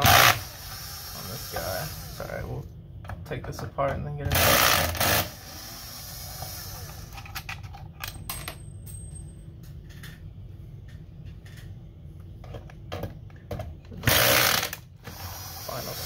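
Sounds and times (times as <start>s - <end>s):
drill running: 0.0s - 2.2s, 4.3s - 7.0s, 14.0s - 16.0s.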